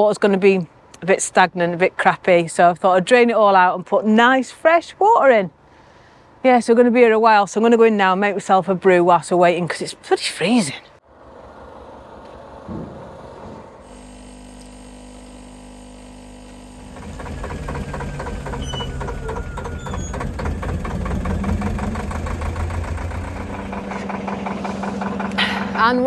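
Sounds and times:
coffee machine humming and pumping: 0:13.8 - 0:19.6
diesel boat engine running: 0:13.8 - 0:26.0.

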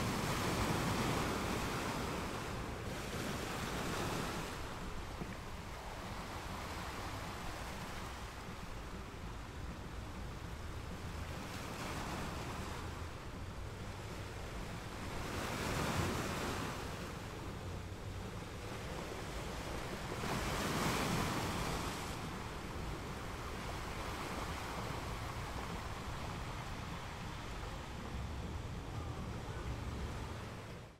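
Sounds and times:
wind rumble on microphone: 0:00.0 - 0:30.9
sea waves on rocky shore: 0:14.4 - 0:30.8.

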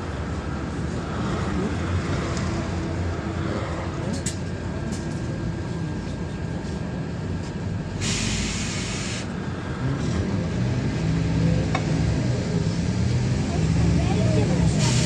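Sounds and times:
bus diesel engine drone: 0:00.0 - 0:15.0
road rumble: 0:00.0 - 0:15.0
compressed air hiss: 0:08.0 - 0:09.3, 0:14.8 - 0:15.0.

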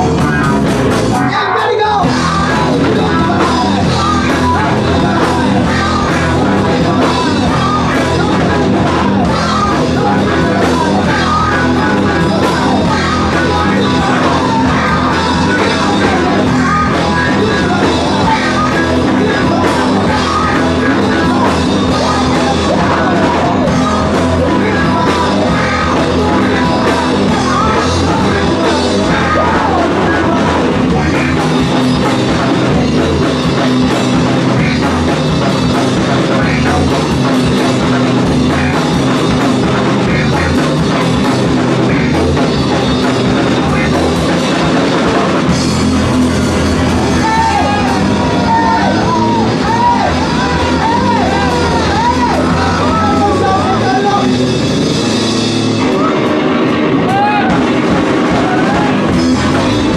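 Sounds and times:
singer shouting into microphone: 0:00.0 - 0:44.8, 0:45.4 - 0:59.9
drum kit: 0:00.0 - 0:59.9
electric guitar: 0:00.0 - 0:59.9.

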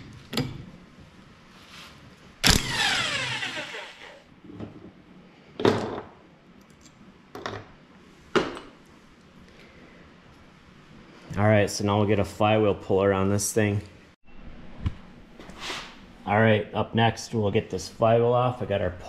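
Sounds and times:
impact wrench burst: 0:02.4 - 0:04.2.

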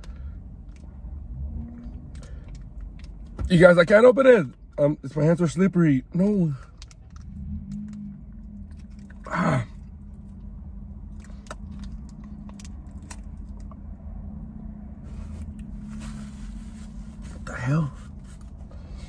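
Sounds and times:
low hum: 0:06.6 - 0:19.0
man chewing with wet clicks: 0:11.0 - 0:13.9.

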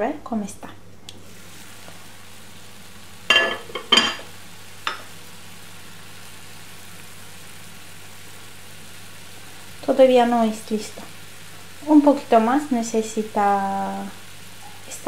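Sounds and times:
food sizzling in a frying pan: 0:01.1 - 0:15.0
glass pan lid clinking: 0:03.3 - 0:04.2.

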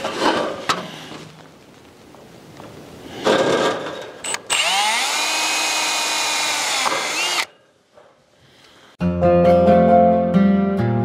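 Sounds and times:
cordless drill driving a screw: 0:04.2 - 0:07.5.

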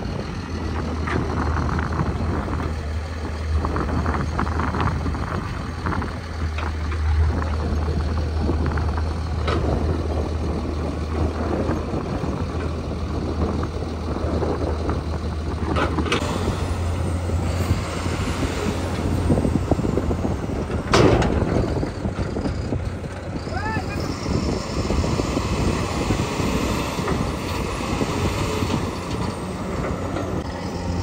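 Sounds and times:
heavy diesel engine running: 0:00.0 - 0:31.0.

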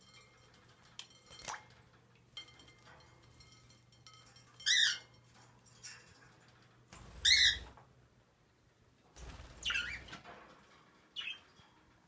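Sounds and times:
budgerigars chirping: 0:07.2 - 0:07.7.

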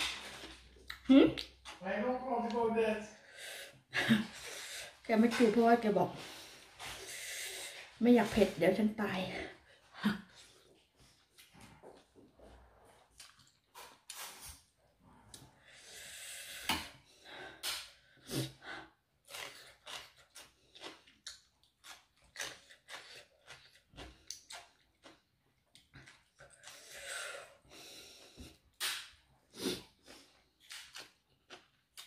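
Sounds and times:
chewing and mouth smacks: 0:13.0 - 0:14.7, 0:19.3 - 0:27.0, 0:30.5 - 0:32.0.

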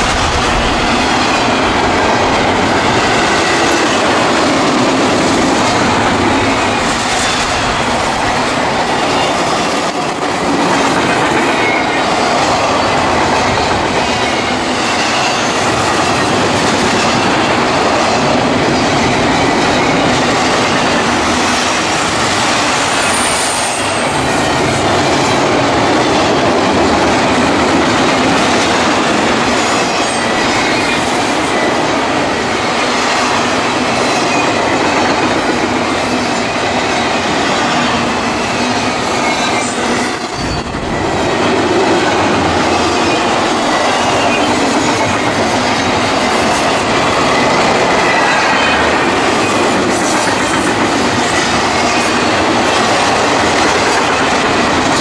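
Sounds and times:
freight train wheels rumbling: 0:00.0 - 0:55.0.

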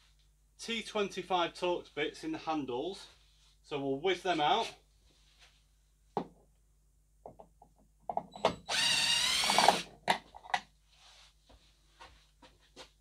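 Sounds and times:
cordless drill running: 0:08.6 - 0:09.9.

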